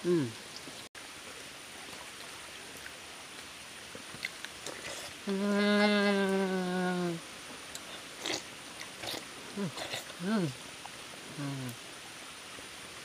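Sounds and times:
man humming: 0.0s - 0.3s, 5.3s - 7.2s, 9.6s - 10.6s, 11.3s - 11.8s.

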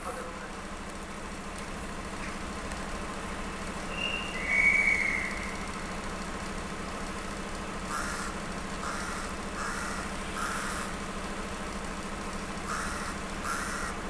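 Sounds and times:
diesel locomotive engine humming: 0.0s - 14.0s
bird calls: 3.8s - 5.9s, 7.9s - 11.0s, 12.7s - 14.0s.

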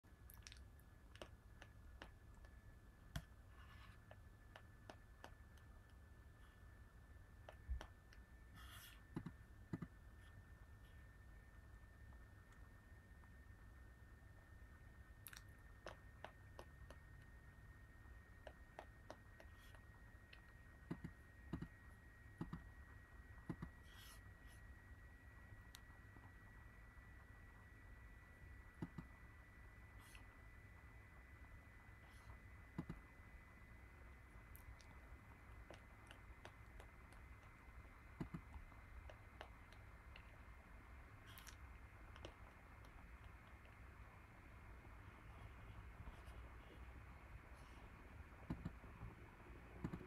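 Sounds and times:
faint high whine: 0.0s - 50.0s
faint high-pitched hum: 0.0s - 50.0s
computer mouse clicks: 7.5s - 10.0s, 20.4s - 21.8s, 22.4s - 22.7s, 23.4s - 24.1s, 28.8s - 29.1s, 32.8s - 33.0s, 48.4s - 48.8s, 49.7s - 50.0s
computer clicking: 22.4s - 22.7s, 49.8s - 50.0s
sharp low clicks: 49.8s - 50.0s.

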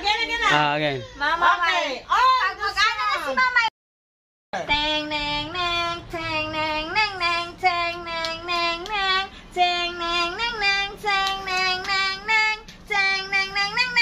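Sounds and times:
child singing: 4.6s - 14.0s.

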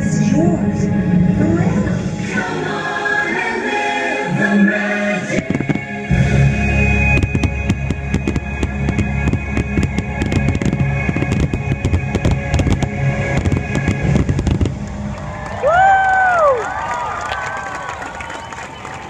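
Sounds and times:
loud show music with bass: 4.3s - 15.1s
fireworks cracks and bangs: 5.4s - 6.0s, 7.1s - 16.1s.

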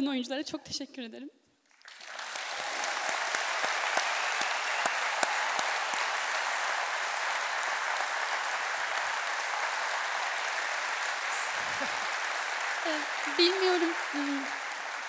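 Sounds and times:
audience applauding: 1.7s - 15.0s
close single claps: 1.8s - 10.3s.

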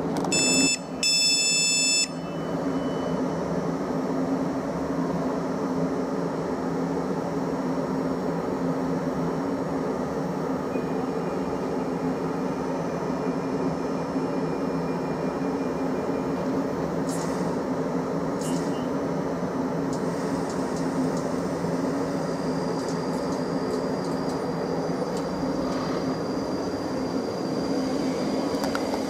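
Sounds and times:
electric train humming: 0.0s - 29.0s
door warning beeps: 0.3s - 3.2s.

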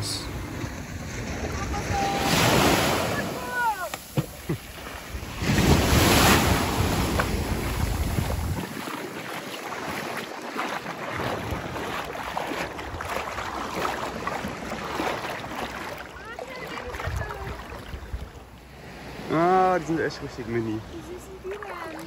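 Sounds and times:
sea water lapping at shore: 0.0s - 22.0s
wind buffeting microphone: 0.3s - 8.9s.

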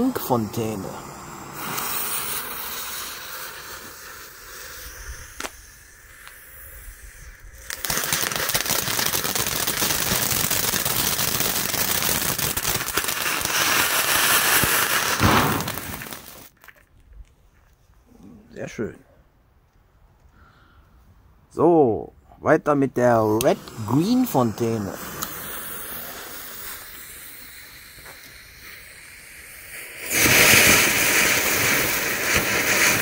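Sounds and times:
firework fountain hissing: 0.0s - 16.5s, 23.3s - 33.0s
sparks crackling: 0.0s - 16.8s, 23.1s - 33.0s.

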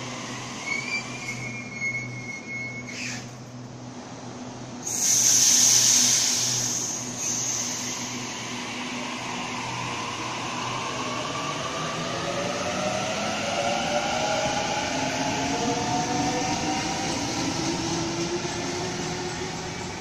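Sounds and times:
loud hiss of air: 4.8s - 10.6s.

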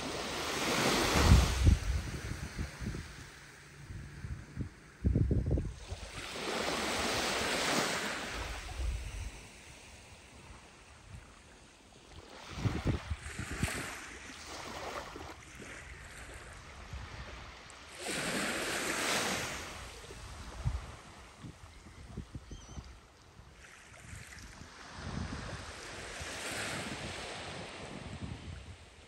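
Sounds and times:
small waves washing on sandy beach: 0.0s - 5.0s, 5.6s - 29.0s
wind buffeting microphone: 1.1s - 6.0s, 12.5s - 14.0s.

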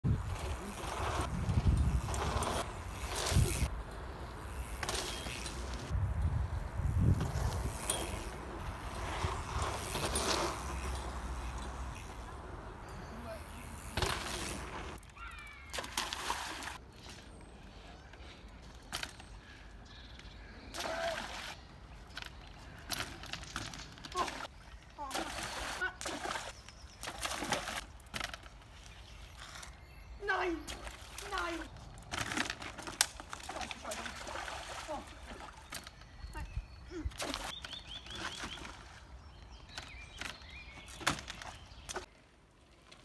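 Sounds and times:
wind rumble on microphone: 0.0s - 3.8s, 5.9s - 9.8s
bike tyres rolling on dirt: 0.0s - 18.3s.

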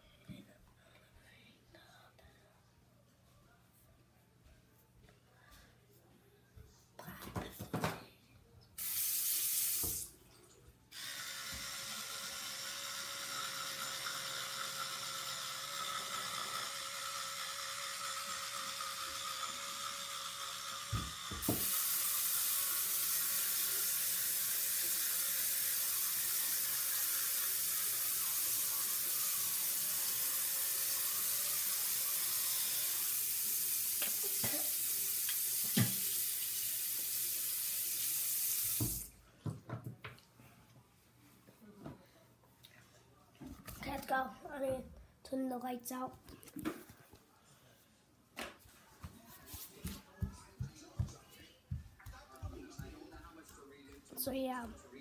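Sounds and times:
tap running into sink: 20.9s - 21.8s, 35.2s - 36.2s, 38.6s - 39.0s.

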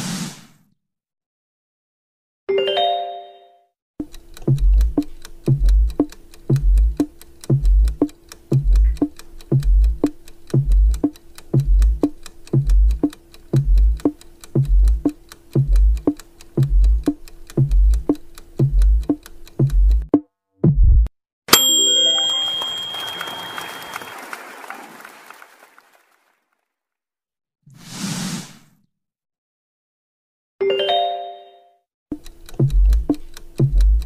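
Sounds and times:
electronic countdown timer music: 4.0s - 20.2s, 32.1s - 34.0s
short bright chime: 21.5s - 24.4s.

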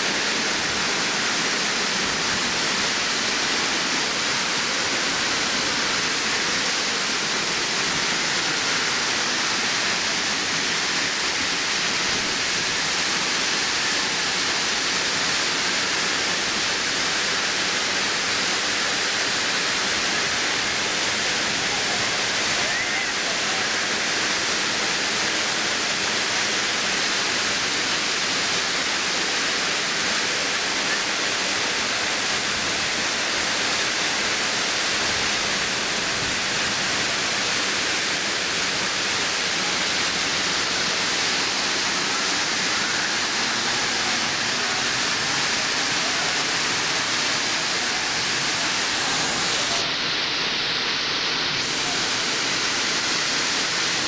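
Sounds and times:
waterfall rushing: 0.0s - 54.0s.

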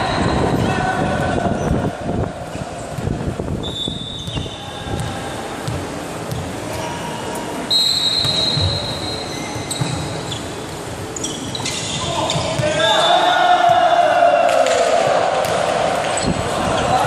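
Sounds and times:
volleyball thudding: 14.5s - 16.1s.

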